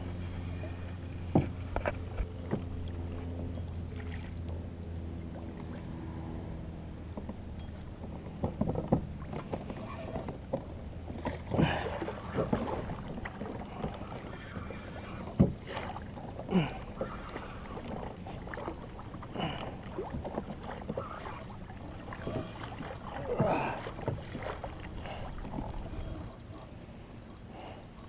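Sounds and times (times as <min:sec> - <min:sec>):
low steady hum: 0:00.0 - 0:28.0
sharp knocks against hull: 0:01.3 - 0:02.7
water splashing against kayak hull: 0:07.2 - 0:28.0.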